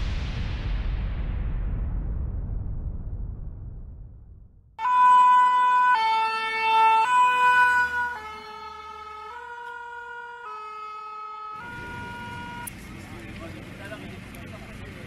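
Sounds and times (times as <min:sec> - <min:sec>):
two-tone emergency siren: 0:04.8 - 0:12.8.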